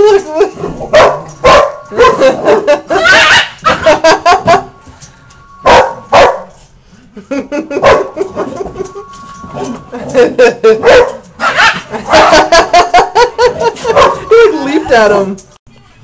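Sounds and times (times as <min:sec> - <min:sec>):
dog yipping: 0:00.9 - 0:02.2, 0:02.9 - 0:03.9, 0:05.6 - 0:06.5, 0:10.8 - 0:12.5
dog barking: 0:00.9 - 0:02.4, 0:05.7 - 0:06.5, 0:07.8 - 0:08.2, 0:10.8 - 0:12.5, 0:13.8 - 0:14.3.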